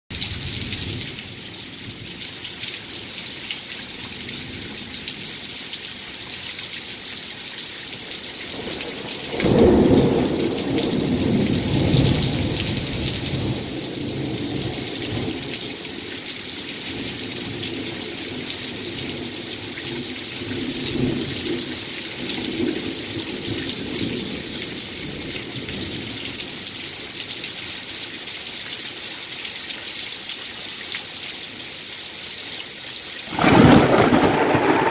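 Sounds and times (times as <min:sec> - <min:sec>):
heavy rain pouring: 0:00.1 - 0:34.9
thunder clap and rumble: 0:09.3 - 0:15.4, 0:33.3 - 0:34.9.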